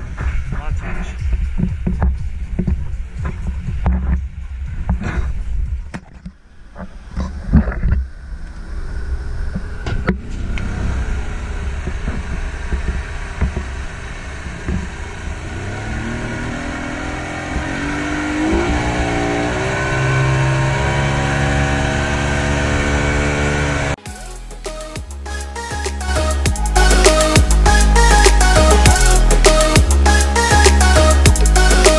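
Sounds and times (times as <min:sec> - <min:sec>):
outboard motor: 0:01.3 - 0:24.0.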